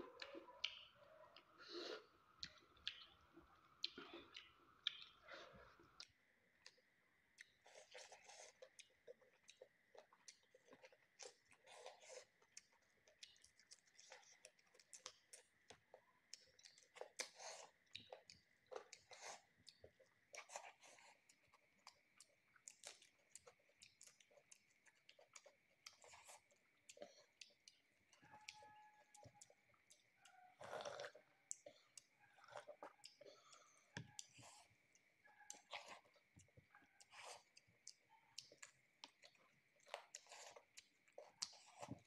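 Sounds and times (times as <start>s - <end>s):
person chewing food: 0.0s - 42.0s
wet mouth clicks and smacks: 2.4s - 3.2s, 3.8s - 5.2s.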